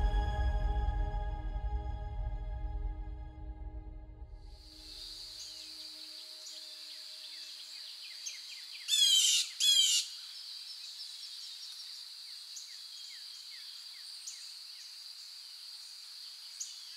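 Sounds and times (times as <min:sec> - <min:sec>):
loud harsh bird call: 0:08.9 - 0:10.1.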